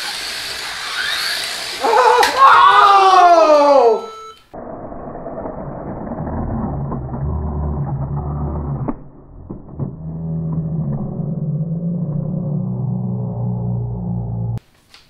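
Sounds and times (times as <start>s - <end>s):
slot car motors humming: 0.0s - 1.8s.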